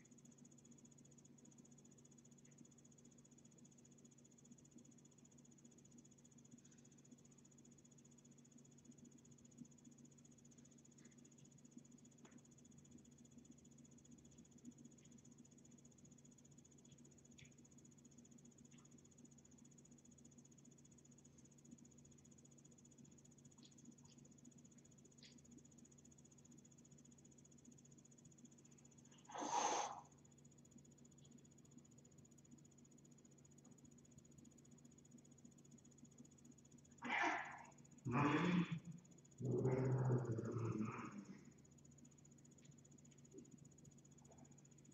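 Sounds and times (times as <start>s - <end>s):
faint high whine: 0.0s - 44.9s
steady low hum: 0.0s - 44.9s
short noisy puff: 29.3s - 30.1s.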